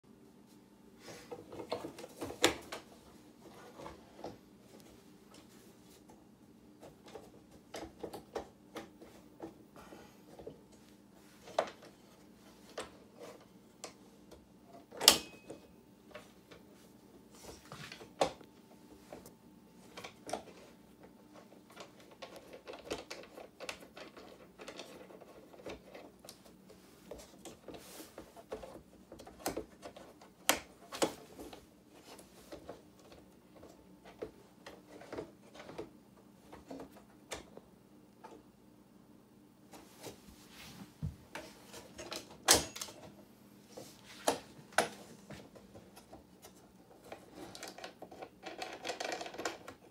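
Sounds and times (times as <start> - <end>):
wood and metal clicks and knocks: 6.8 - 9.6, 19.9 - 26.5, 27.1 - 38.4, 41.3 - 43.2, 44.3 - 49.9.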